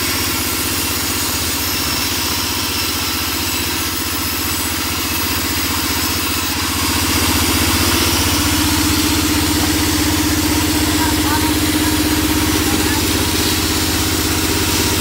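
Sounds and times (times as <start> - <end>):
band saw ripping wooden plank: 0.0 - 15.0
engine pulsing drone: 5.1 - 15.0.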